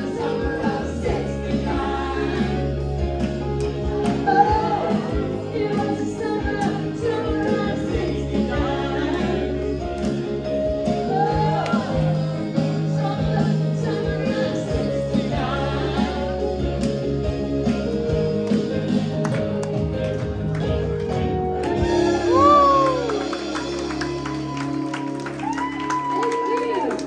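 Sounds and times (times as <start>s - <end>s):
live band playing: 0.0s - 26.9s
drums: 0.0s - 27.0s
electric guitar: 13.8s - 27.0s.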